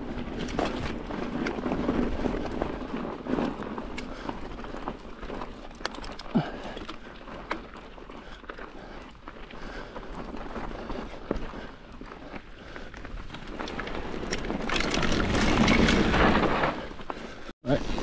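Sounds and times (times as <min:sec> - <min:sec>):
bike tyres rolling over gravel: 0:00.0 - 0:18.0
scattered crunches and clicks: 0:00.2 - 0:17.5.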